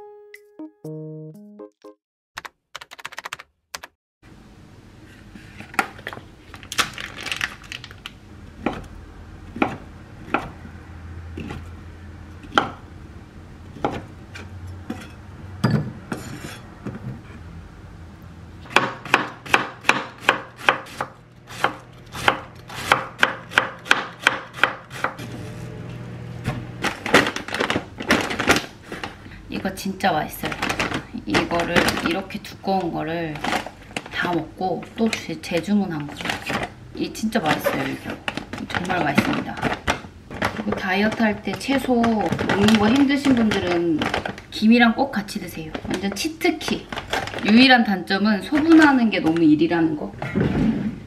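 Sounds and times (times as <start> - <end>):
knife chopping on wooden board: 18.7 - 25.4.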